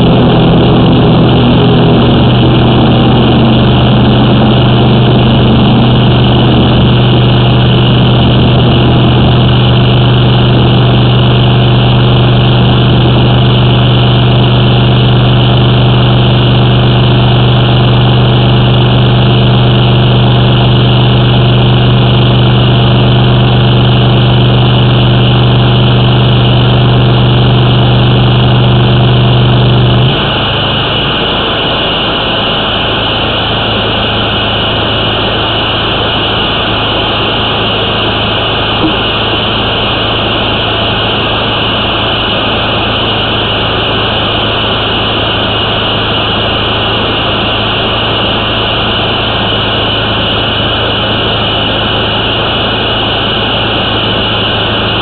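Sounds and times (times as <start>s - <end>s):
drain jetter engine humming: 0.0s - 55.0s.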